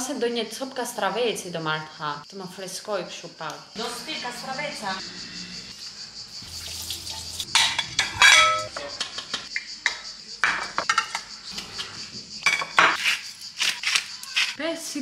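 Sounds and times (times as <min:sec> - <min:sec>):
ceramic bowls clattering: 0:07.4 - 0:11.8, 0:12.4 - 0:13.0.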